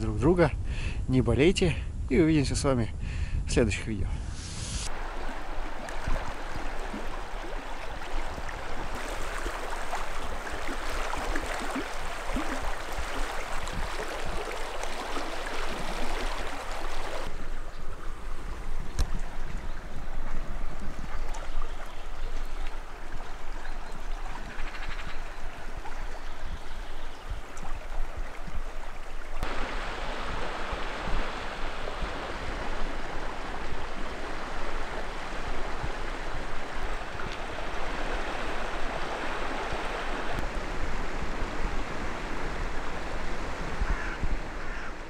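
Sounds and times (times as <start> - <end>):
fast river water rushing: 4.9 - 17.3, 27.4 - 45.0.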